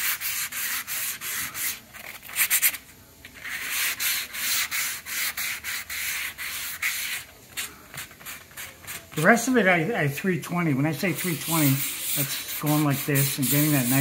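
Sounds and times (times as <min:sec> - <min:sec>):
hand sanding rubbing strokes: 0:00.0 - 0:01.8, 0:03.4 - 0:07.3, 0:10.9 - 0:14.0.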